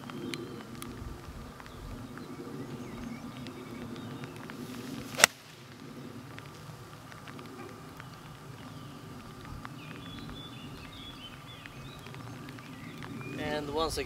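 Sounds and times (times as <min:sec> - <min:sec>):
golf club striking ball: 0:05.0 - 0:05.5.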